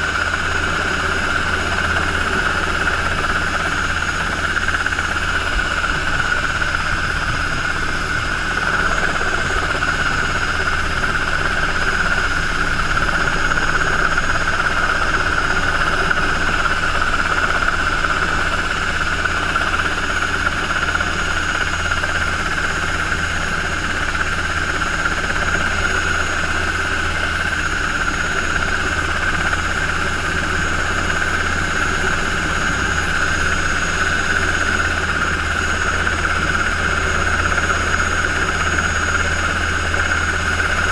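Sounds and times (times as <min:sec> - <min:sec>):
helicopter rotor rumble: 0:00.0 - 0:40.9
helicopter turbine engine whine: 0:00.0 - 0:40.9.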